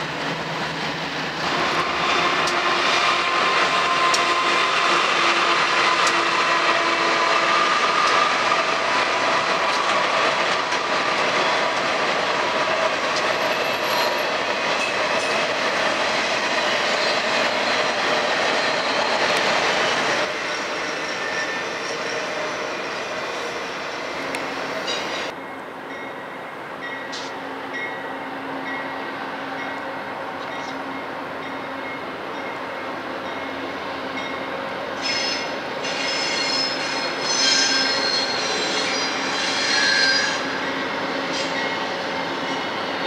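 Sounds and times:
train wheels rumbling on rails: 0:00.0 - 0:43.0
wheel squealing tones: 0:35.0 - 0:40.7.

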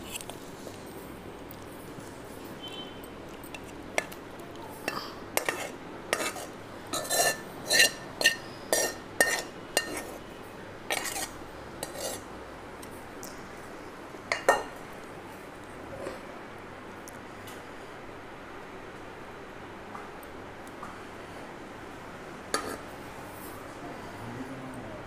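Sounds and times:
metal spoon scraping a pot: 0:05.4 - 0:10.2, 0:10.9 - 0:12.3, 0:22.6 - 0:22.8.

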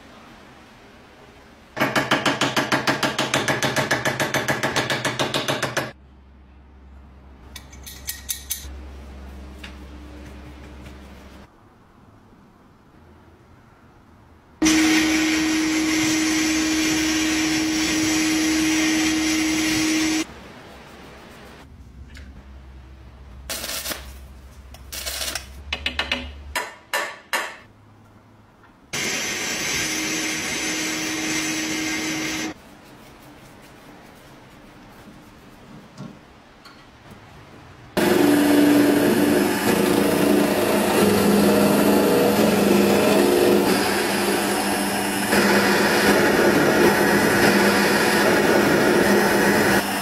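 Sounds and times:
metal parts clicking and knocking: 0:07.5 - 0:08.7
metal lathe running: 0:38.0 - 0:50.0.

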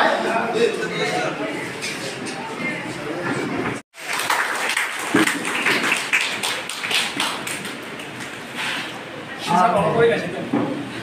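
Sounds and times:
group of people clapping: 0:03.9 - 0:08.6.

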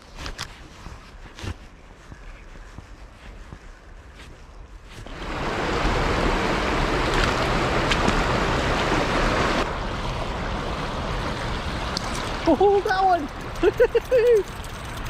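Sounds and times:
rushing river water: 0:05.1 - 0:15.0.

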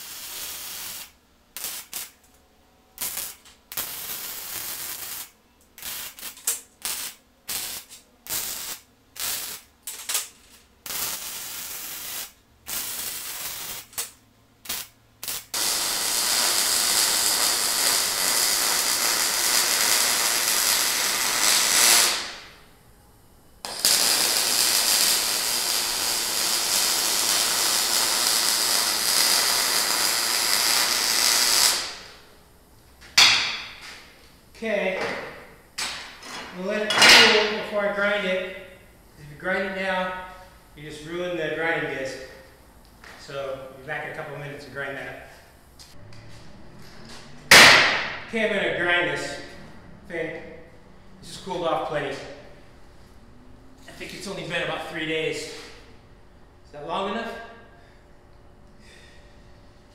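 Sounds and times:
welding arc crackling: 0:00.0 - 0:02.3, 0:03.0 - 0:22.7, 0:23.6 - 0:32.3.

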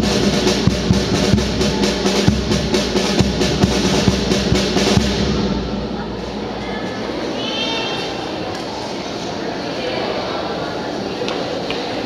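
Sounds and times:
snare drum rolls: 0:00.0 - 0:06.6
bass drum strokes: 0:00.0 - 0:07.2.

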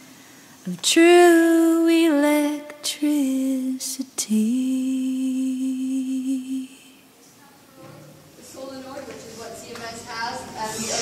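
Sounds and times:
person humming long held notes: 0:04.2 - 0:07.0.

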